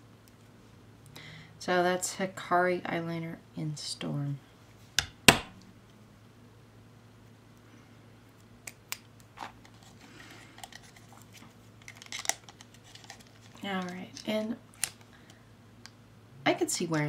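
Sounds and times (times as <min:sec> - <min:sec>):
faint low hum: 0:00.0 - 0:17.0
sharp knock: 0:05.3 - 0:05.6.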